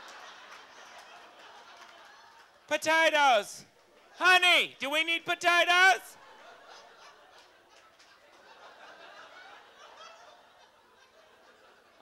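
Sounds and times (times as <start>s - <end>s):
audience laughter: 0.0s - 2.6s, 6.2s - 12.0s.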